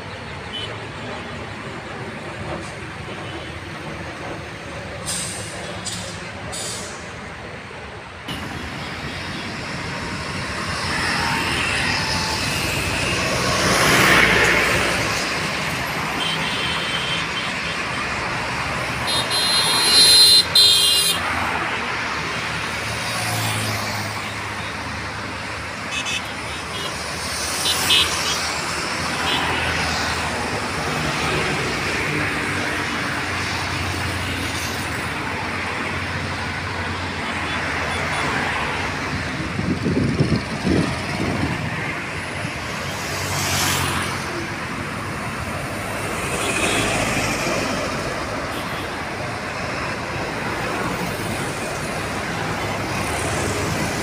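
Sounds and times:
highway traffic hum: 0.0s - 54.0s
vehicle horn blaring: 19.0s - 21.2s.

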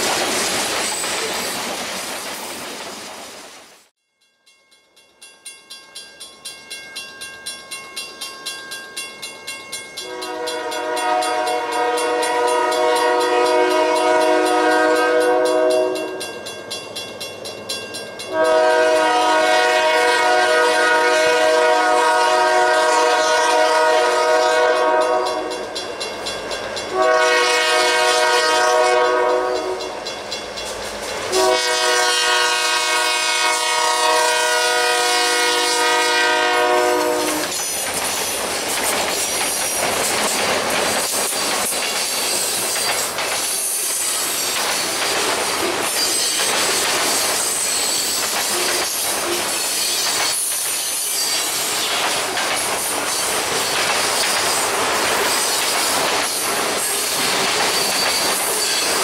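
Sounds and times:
wheels clacking over rail joints: 0.0s - 3.6s, 37.0s - 59.0s
train wheels on rail: 0.0s - 3.9s, 5.3s - 59.0s
locomotive air horn blasts: 10.0s - 16.1s, 18.3s - 25.5s, 26.9s - 29.8s, 31.3s - 37.5s
high wheel squeal: 45.8s - 52.0s, 56.8s - 59.0s.

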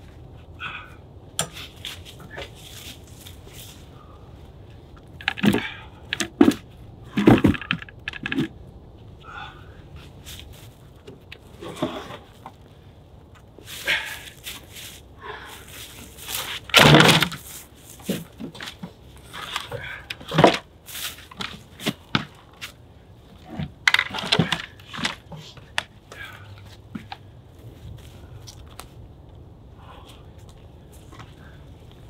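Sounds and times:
logs knocking and thudding: 5.1s - 8.6s, 16.6s - 20.7s, 21.3s - 22.8s, 23.5s - 25.9s.

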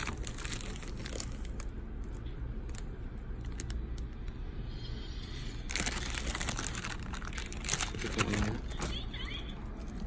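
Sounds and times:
plastic wrap crinkling: 0.0s - 4.3s, 5.7s - 9.1s
steady low hum: 0.0s - 10.0s.

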